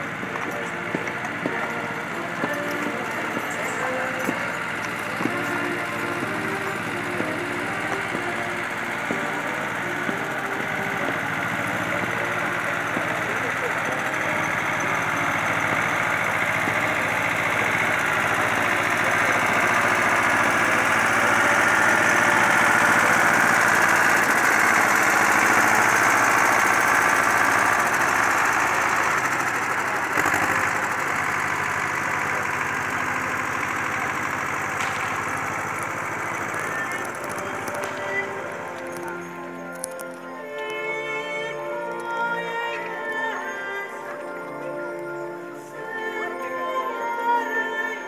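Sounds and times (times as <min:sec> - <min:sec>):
tractor engine running: 0:00.0 - 0:48.0.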